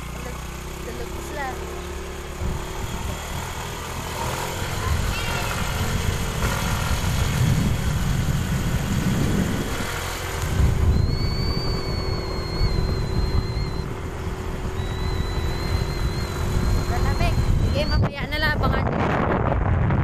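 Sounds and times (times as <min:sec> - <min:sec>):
scooter engine running: 0:00.0 - 0:19.9
wind buffeting microphone: 0:02.2 - 0:20.0.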